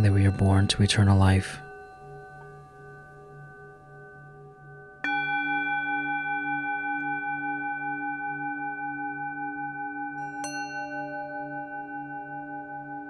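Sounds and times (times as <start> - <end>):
singing bowl ringing: 0.0 - 13.0
singing bowl struck: 0.0 - 13.0.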